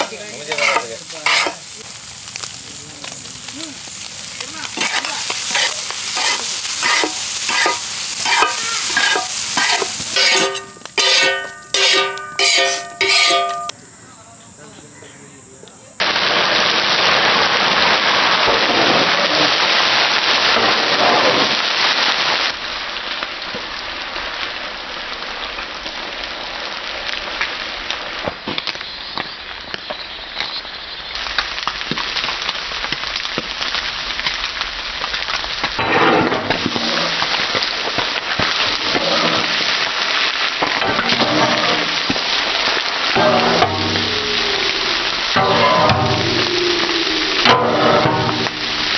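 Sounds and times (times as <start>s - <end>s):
squid sizzling in hot oil: 0.0s - 13.8s, 21.5s - 35.8s, 36.5s - 48.9s.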